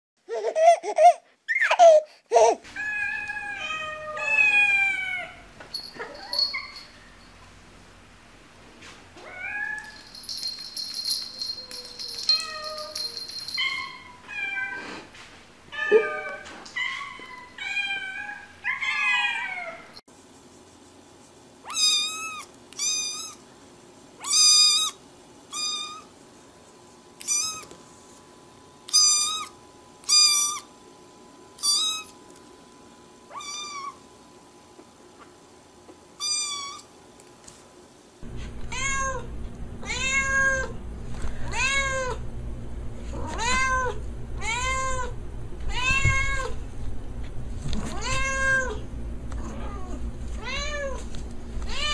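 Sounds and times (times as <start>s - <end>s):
cats meowing: 2.7s - 6.8s, 39.8s - 40.7s, 43.1s - 45.1s, 45.7s - 46.6s.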